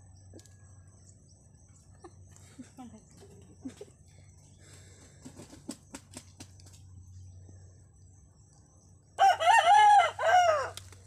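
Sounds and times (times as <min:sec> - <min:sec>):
rooster crowing: 0:09.2 - 0:10.9.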